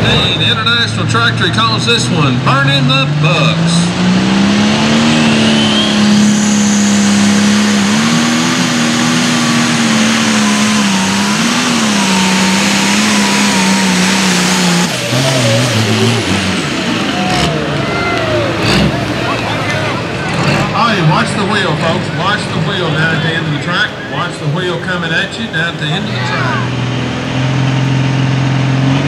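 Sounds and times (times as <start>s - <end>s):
diesel engine running flat out: 0.0s - 29.0s
turbo whine: 4.9s - 17.5s.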